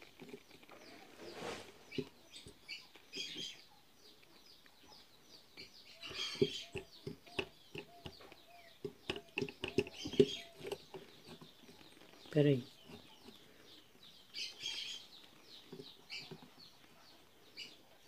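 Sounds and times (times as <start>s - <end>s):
faint bird calls: 4.7s - 18.0s.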